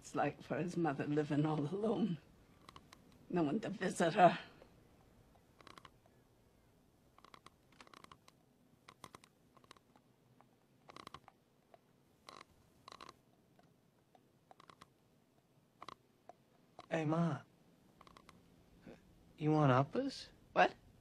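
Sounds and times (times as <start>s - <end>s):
faint teeth grinding: 2.5s - 3.3s, 4.6s - 6.2s, 7.1s - 16.9s, 17.9s - 19.1s.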